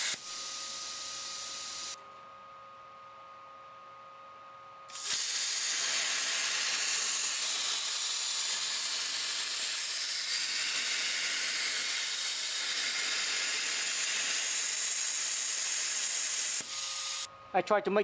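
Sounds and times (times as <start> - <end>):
plasma cutter arc hissing: 0.0 - 2.0, 4.9 - 17.3.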